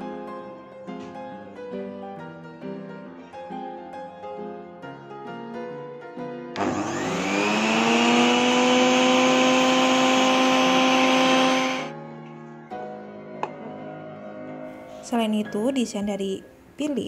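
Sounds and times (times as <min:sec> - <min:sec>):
piano music: 0:00.0 - 0:16.6
juicer motor whining: 0:06.6 - 0:11.9.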